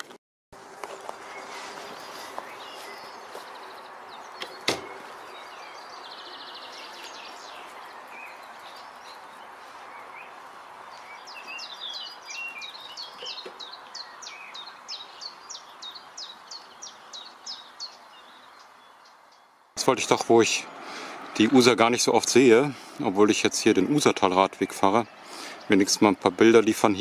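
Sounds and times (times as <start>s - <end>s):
outdoor hiss: 0.6s - 23.3s, 25.1s - 26.2s
songbird singing: 0.6s - 27.0s
bird trill: 11.0s - 19.5s.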